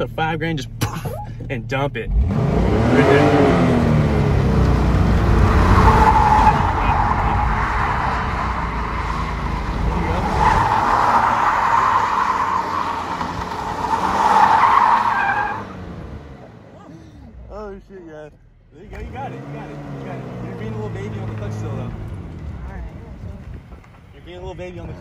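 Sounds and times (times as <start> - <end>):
car engine at high revs: 0.0 - 17.5, 18.8 - 24.2
tyres squealing on pavement: 5.3 - 16.0.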